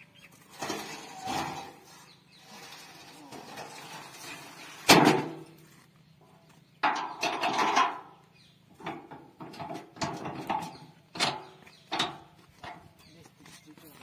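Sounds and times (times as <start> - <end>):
metal tailgate slamming: 4.8 - 5.4.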